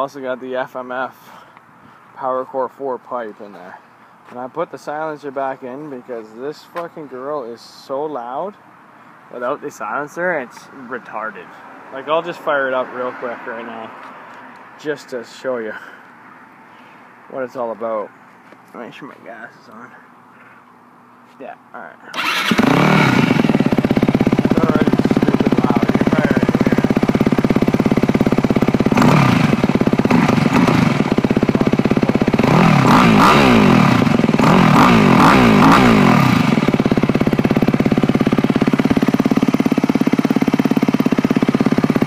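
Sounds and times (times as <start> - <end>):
motorcycle engine idling and revving: 22.1 - 42.0.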